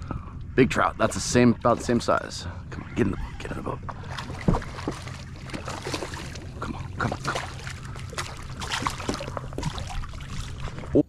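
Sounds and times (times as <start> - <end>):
fish splashing at surface: 4.0 - 6.5, 7.1 - 10.9.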